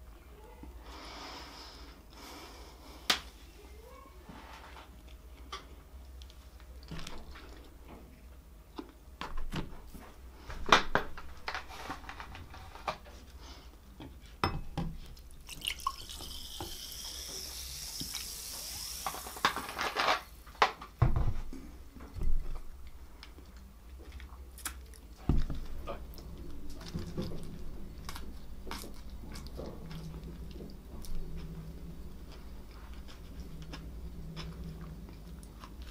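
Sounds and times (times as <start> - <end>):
cola pouring and fizzing: 15.3 - 19.8.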